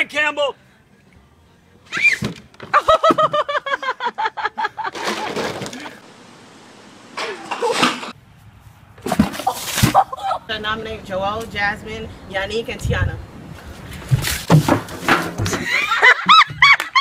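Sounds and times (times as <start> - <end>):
high-pitched laughter: 2.7 - 5.3, 9.4 - 10.5, 15.6 - 17.0.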